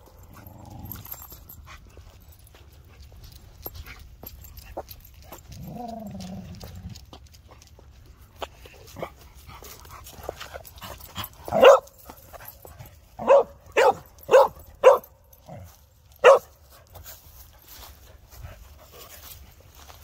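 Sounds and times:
dog barking: 11.5 - 12.0, 13.2 - 15.2, 16.2 - 16.5.

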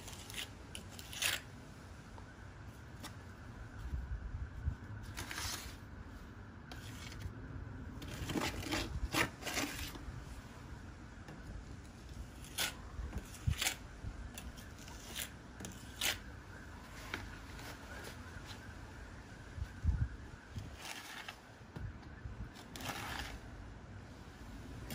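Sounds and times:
mortar scraping in a bucket: 0.0 - 1.5, 8.0 - 10.0, 14.6 - 16.2, 20.6 - 21.4, 22.6 - 23.4.

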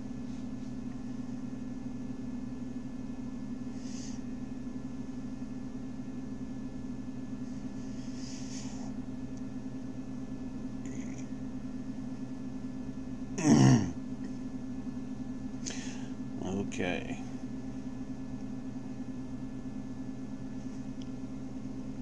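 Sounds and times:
steady low hum: 0.0 - 22.0
man clearing his throat: 13.4 - 14.0.

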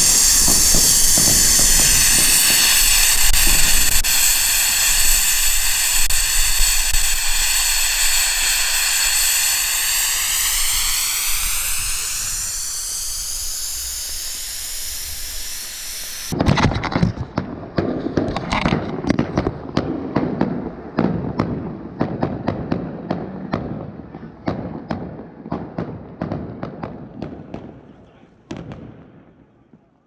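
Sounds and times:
steady hiss: 0.0 - 16.4
fireworks banging: 0.0 - 29.9.

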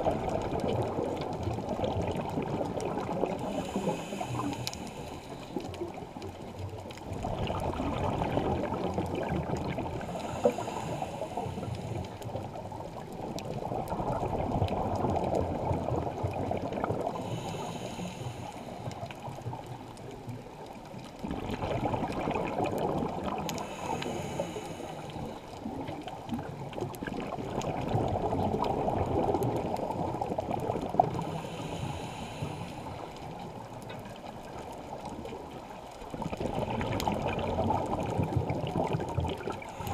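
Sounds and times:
bubbling exhale underwater: 0.0 - 19.8, 21.1 - 39.9
regulator hissing inhale: 3.4 - 5.8, 10.0 - 12.3, 17.1 - 19.2, 23.6 - 25.7, 31.2 - 33.4, 39.6 - 39.9.

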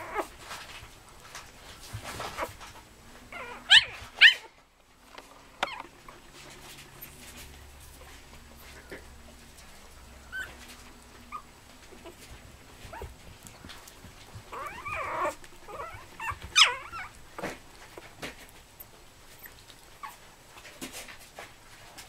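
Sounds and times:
puppies squeaking and whining: 0.0 - 0.3, 1.9 - 4.6, 5.6 - 8.9, 10.2 - 18.2, 18.8 - 20.2.

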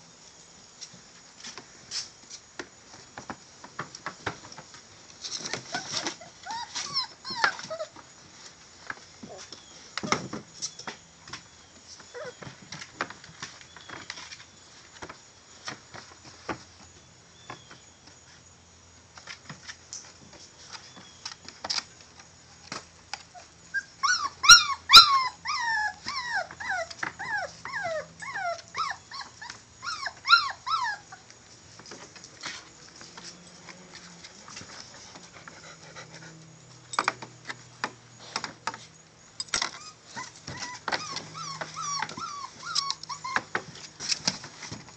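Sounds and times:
puppies whimpering and yelping: 5.4 - 8.0, 12.0 - 12.6, 23.3 - 31.3, 39.6 - 43.9
puppy squeals falling in pitch: 5.5 - 7.9, 23.8 - 31.2, 39.7 - 43.5.

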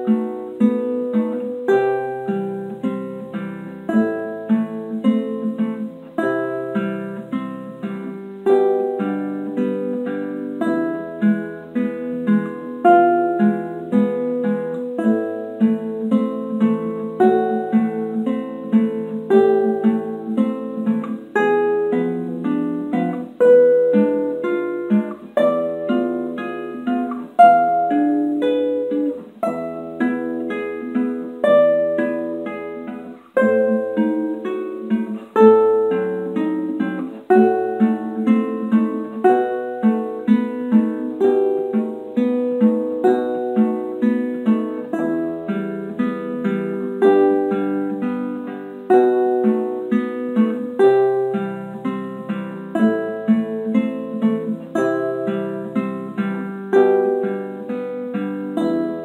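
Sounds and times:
classical guitar fingerstyle: 0.0 - 59.0.

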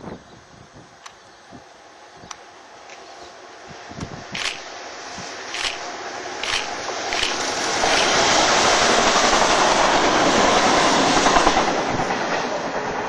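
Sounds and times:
diesel locomotive engine: 0.0 - 13.0
sharp clicks: 4.0 - 4.7, 5.5 - 8.3
wagon wheels on rails: 4.3 - 4.7, 5.5 - 10.1.

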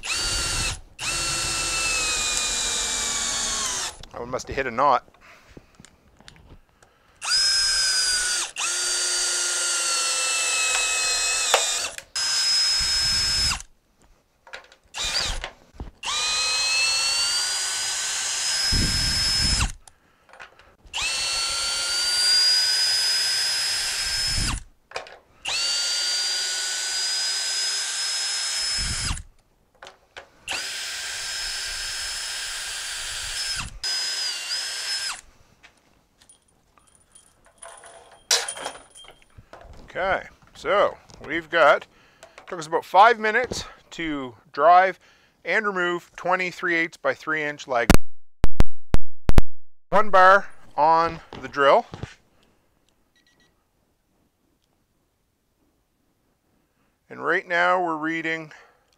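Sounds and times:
cordless drill whining: 0.0 - 4.1, 7.2 - 13.7, 14.9 - 20.0, 20.8 - 24.7, 25.4 - 29.3, 30.4 - 35.3.

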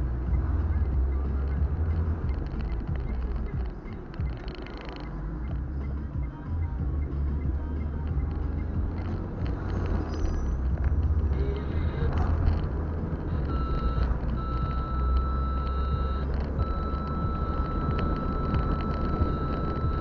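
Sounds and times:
car engine and road rumble: 0.0 - 20.0
high electronic beep tone: 11.2 - 12.4, 13.2 - 20.0.

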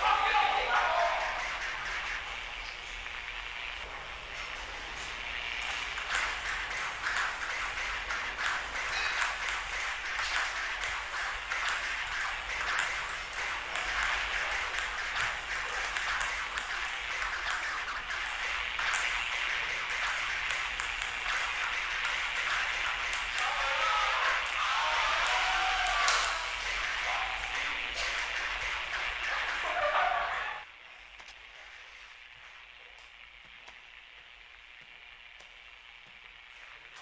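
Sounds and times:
steady hiss: 0.0 - 37.0
table tennis ball clicking: 5.6 - 24.6, 25.2 - 29.6.

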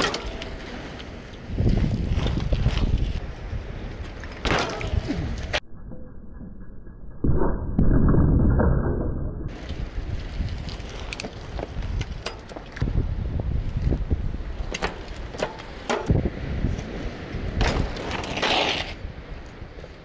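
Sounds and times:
bike tyres on paved path: 0.0 - 5.6, 9.5 - 20.0
low rumble: 4.9 - 10.8.

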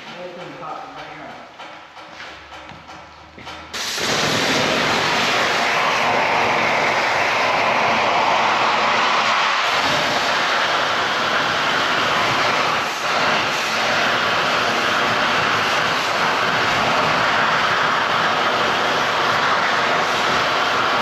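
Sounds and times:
cutting torch roaring: 3.7 - 21.0.

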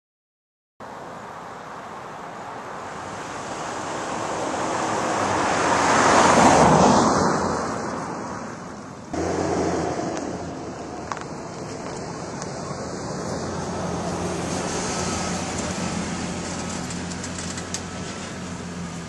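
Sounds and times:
low engine hum: 9.0 - 19.0
truck driving past: 9.1 - 19.0.

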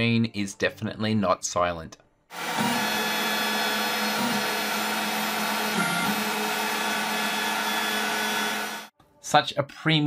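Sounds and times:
stepper motors whining: 2.4 - 8.9.

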